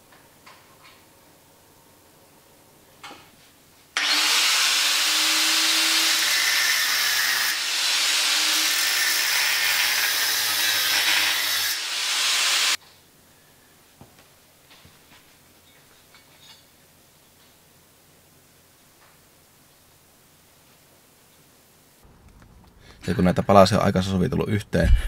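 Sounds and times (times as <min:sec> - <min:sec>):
angle grinder cutting metal pipe: 0:04.0 - 0:12.8.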